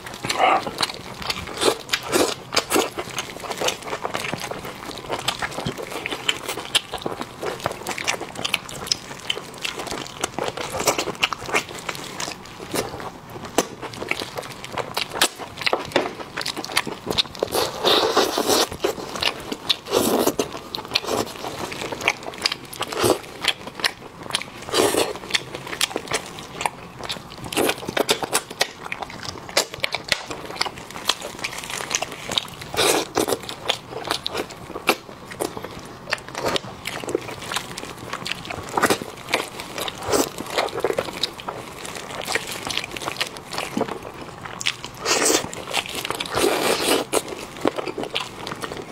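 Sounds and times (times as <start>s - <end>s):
wet chewing and smacking: 0.0s - 48.9s
biting and sucking noises: 16.7s - 22.2s.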